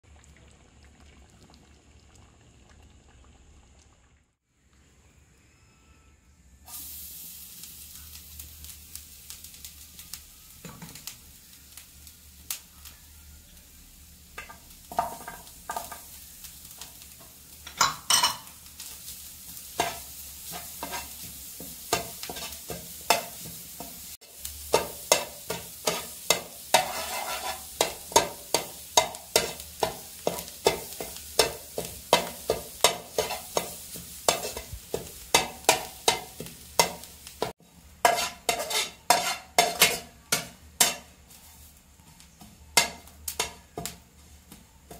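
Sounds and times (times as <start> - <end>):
light sizzle: 0.1 - 5.6, 6.6 - 44.9
metal spatula scraping pan: 22.0 - 23.6, 24.8 - 41.7.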